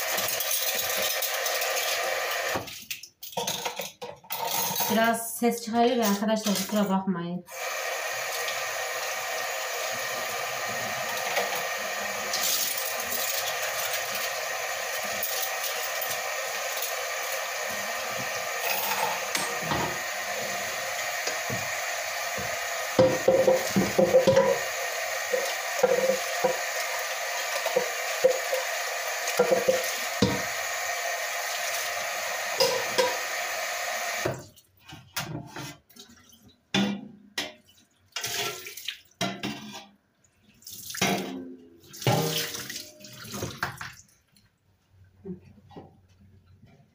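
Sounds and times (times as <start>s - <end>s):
tap running into a sink: 22.3s - 24.7s, 25.3s - 26.6s, 29.3s - 30.5s, 42.0s - 44.0s
dishes knocking: 23.0s - 24.6s, 29.4s - 30.4s
metal bowl clattering: 23.0s - 24.7s, 41.1s - 43.9s.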